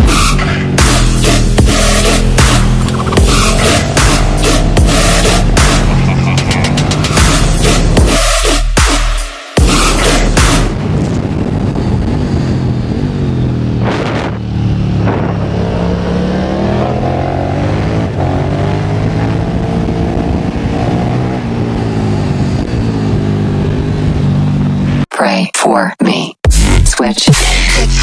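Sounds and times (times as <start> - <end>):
motorcycle engine revving: 0.0 - 25.1
wind rushing: 9.6 - 24.8.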